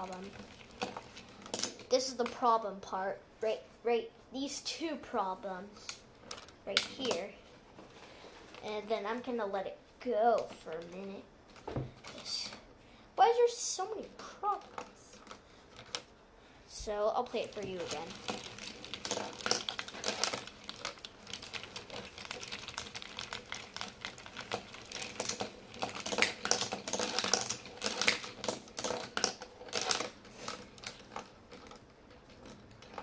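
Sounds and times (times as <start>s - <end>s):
marbles clattering on wooden track: 0.0s - 2.4s, 5.8s - 7.3s, 17.4s - 33.0s
wooden gears turning: 17.4s - 33.0s.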